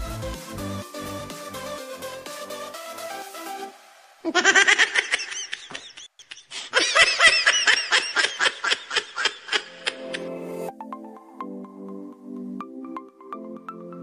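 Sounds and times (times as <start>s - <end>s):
person laughing rapidly: 4.2s - 10.3s.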